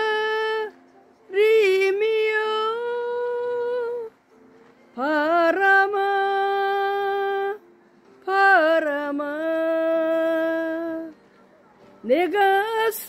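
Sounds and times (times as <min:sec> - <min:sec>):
woman singing sustained notes: 0:05.0 - 0:07.6.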